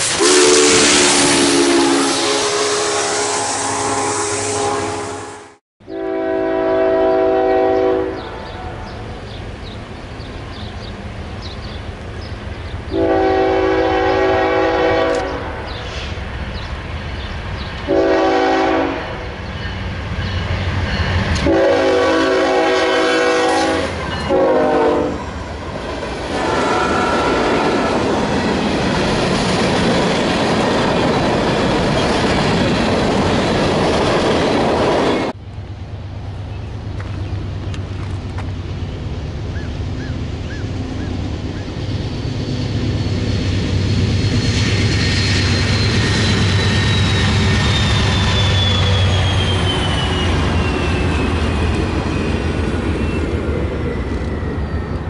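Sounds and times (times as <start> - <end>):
train horn blasts: 0.0 - 9.1, 12.9 - 16.1, 17.8 - 19.3, 21.4 - 25.3, 26.3 - 28.0
distant train rumble: 0.0 - 55.0
freight cars rolling on rails: 25.2 - 55.0.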